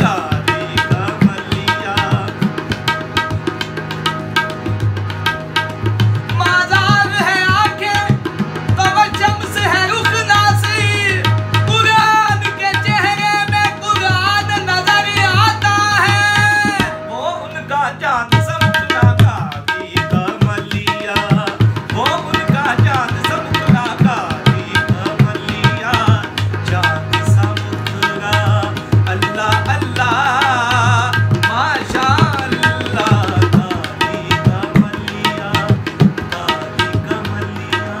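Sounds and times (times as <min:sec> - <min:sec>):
man singing: 0:00.0 - 0:03.4, 0:06.2 - 0:38.0
harmonium drone and melody: 0:00.0 - 0:38.0
tabla drumming: 0:00.0 - 0:38.0.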